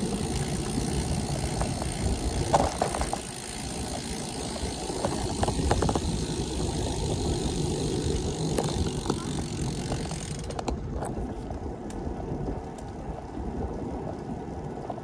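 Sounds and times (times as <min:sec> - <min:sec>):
bicycle clicks and rattles: 0:00.0 - 0:11.2
wind and road noise: 0:00.0 - 0:15.0.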